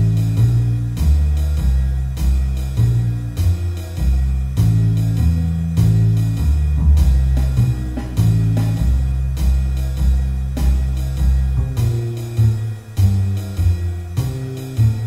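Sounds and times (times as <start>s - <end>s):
drum kit: 0.0s - 15.0s
walking bass: 0.0s - 15.0s.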